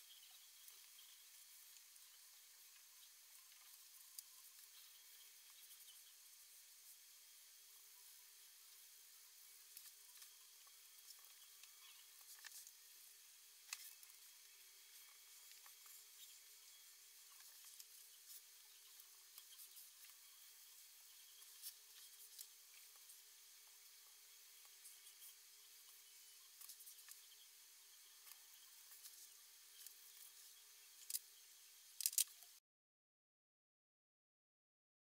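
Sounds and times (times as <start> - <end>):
faint hiss and hum: 0.0 - 32.6
small clicks: 31.0 - 31.3, 32.0 - 32.6.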